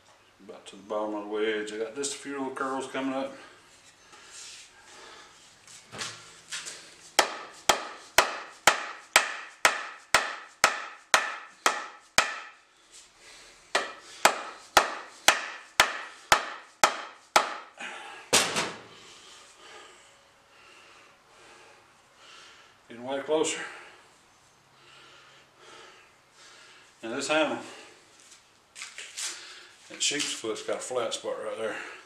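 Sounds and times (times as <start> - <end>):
axe knocking on wooden haft: 7.2 - 12.6, 13.8 - 17.6.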